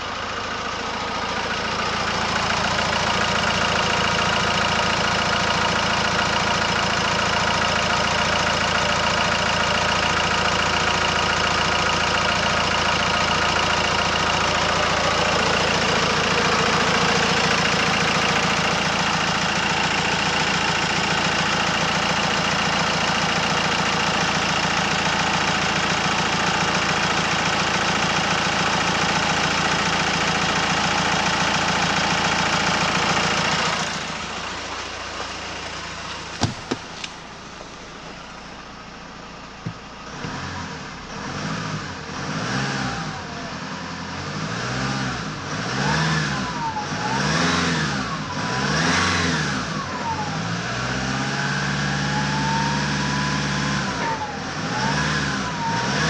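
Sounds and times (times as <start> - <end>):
diesel engine idling: 0.0 - 44.3.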